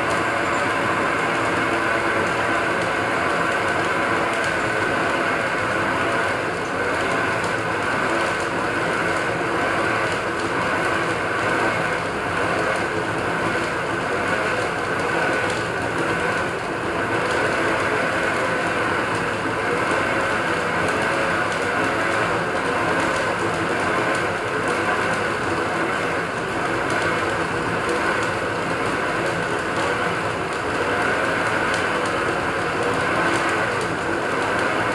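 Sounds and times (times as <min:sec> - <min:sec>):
metal lathe whirring: 0:00.0 - 0:12.5.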